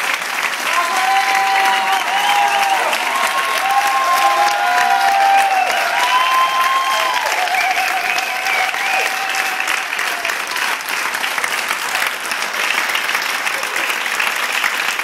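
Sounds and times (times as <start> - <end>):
crowd clapping: 0.0 - 15.0
voices cheering: 0.5 - 11.0.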